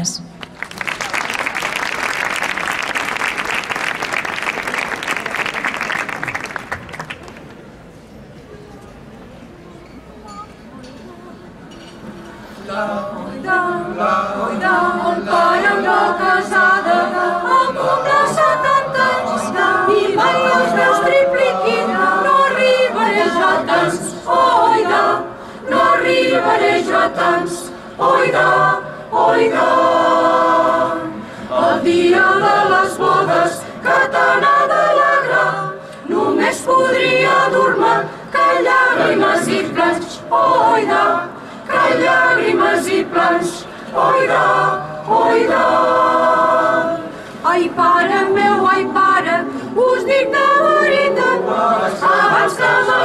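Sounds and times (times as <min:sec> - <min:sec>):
choir singing a cappella: 0:12.5 - 0:53.0
singers breathing: 0:25.3 - 0:25.7, 0:31.2 - 0:31.6, 0:35.8 - 0:36.1, 0:41.3 - 0:41.7, 0:49.4 - 0:49.8.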